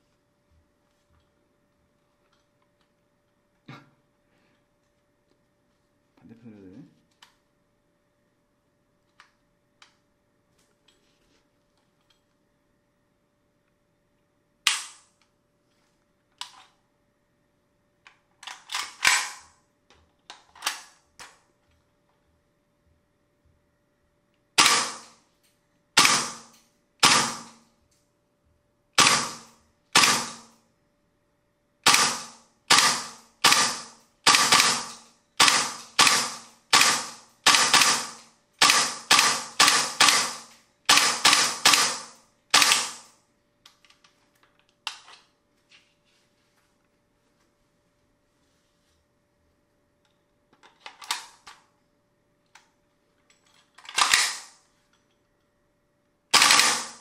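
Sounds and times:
airsoft rifle shots: 18.9 - 19.5, 24.6 - 25.2, 26.0 - 27.6, 29.0 - 30.6, 31.8 - 43.1, 54.0 - 54.6, 56.3 - 57.0.

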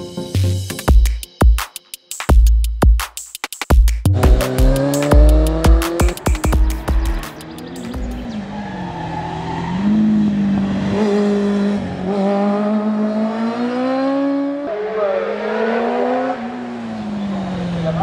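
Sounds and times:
motorcycle engine revving hard: 4.1 - 8.5, 9.7 - 18.0.

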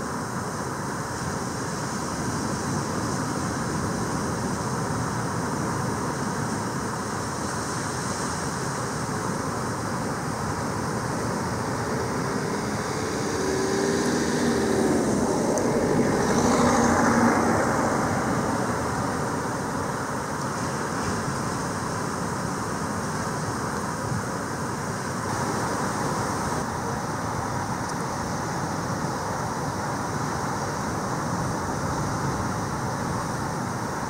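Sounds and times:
outdoor background noise: 0.0 - 34.0
motor vehicle passing: 10.6 - 20.3.

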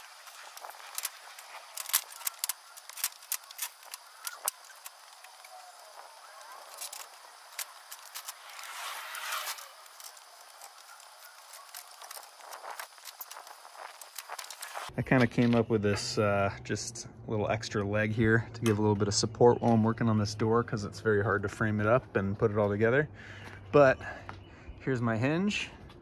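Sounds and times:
scraping and rustling: 0.0 - 14.9.

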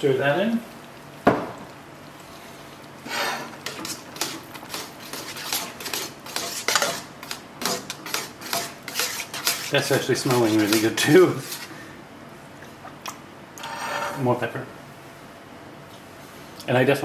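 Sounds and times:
spatula scraping a frying pan: 3.0 - 11.8, 13.6 - 14.2.

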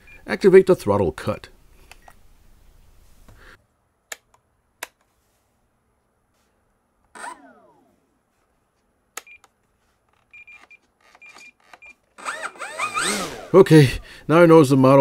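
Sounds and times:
servos buzzing: 7.1 - 8.0, 11.2 - 14.0.

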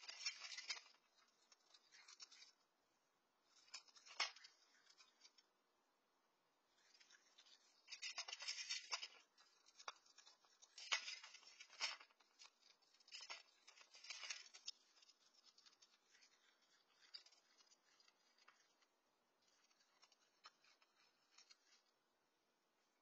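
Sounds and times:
raccoon crunching kibble: 0.0 - 2.5, 6.8 - 21.8.

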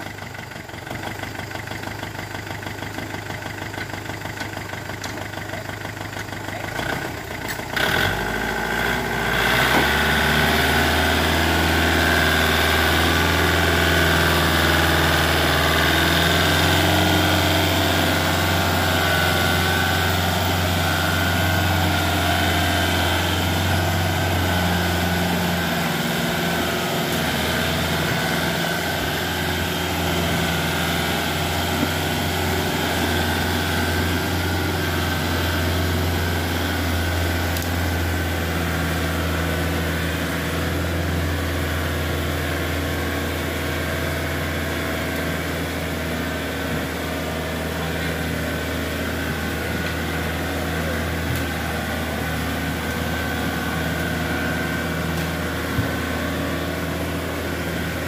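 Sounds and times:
tractor diesel engine working hard: 0.0 - 58.0.

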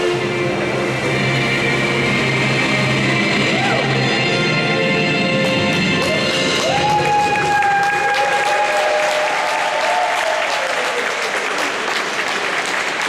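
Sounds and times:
music: 0.0 - 9.2
audience applause and cheering: 5.0 - 13.0
long held whoop: 6.1 - 11.2.

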